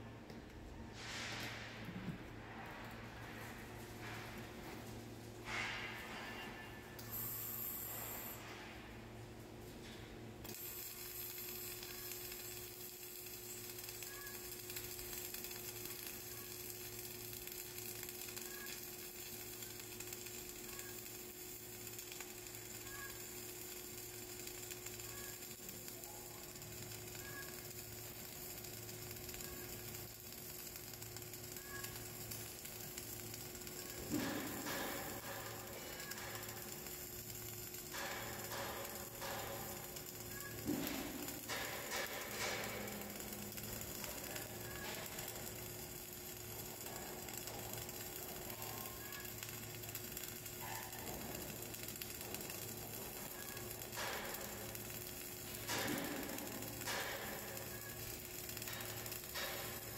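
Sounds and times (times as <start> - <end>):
welding arc crackling hiss: 0.0 - 59.9.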